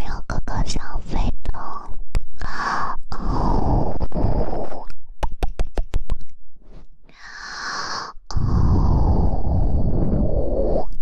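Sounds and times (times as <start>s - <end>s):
breath into microphone: 2.4s - 4.6s, 6.7s - 10.9s
small mouth clicks: 4.6s - 6.4s
soft breathy hiss: 7.1s - 11.0s.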